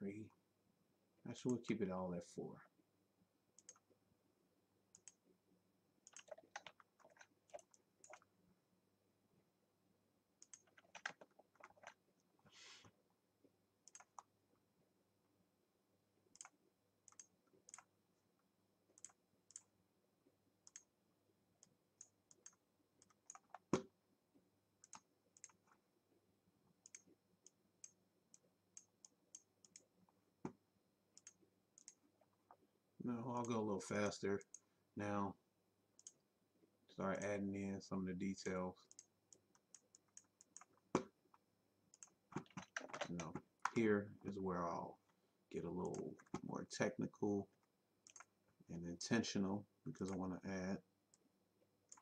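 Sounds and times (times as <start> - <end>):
mouse and keyboard clicks: 3.6 - 3.9, 6.0 - 8.3, 10.4 - 12.0, 13.8 - 14.3, 22.0 - 23.9, 24.8 - 25.8, 41.9 - 43.8, 48.0 - 48.3.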